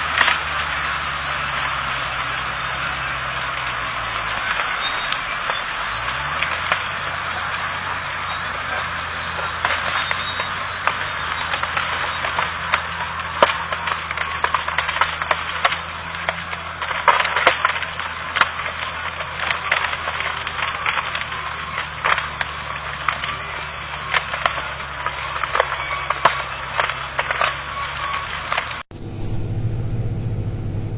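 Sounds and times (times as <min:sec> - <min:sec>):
loud cracking and snapping: 0:00.0 - 0:30.9
machine engine running: 0:28.9 - 0:30.9.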